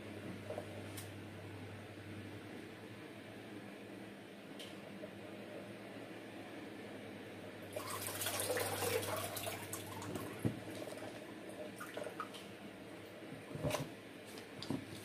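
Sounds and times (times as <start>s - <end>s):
water splashing into basin: 7.8s - 11.2s.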